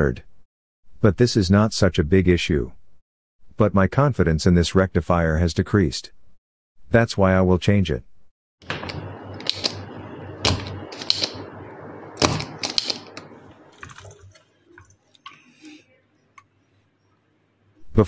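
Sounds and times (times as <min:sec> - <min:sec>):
steady noise: 0:08.6 - 0:14.0.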